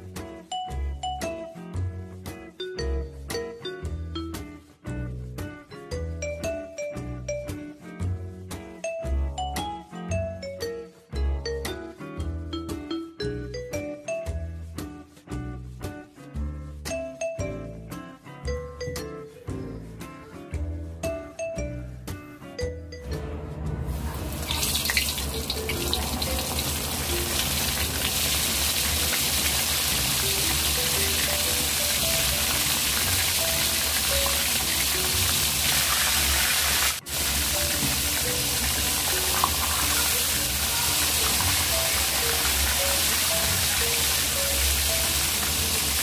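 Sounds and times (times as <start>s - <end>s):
light background music: 0.0s - 46.0s
meat sizzling in hot oil: 24.0s - 46.0s.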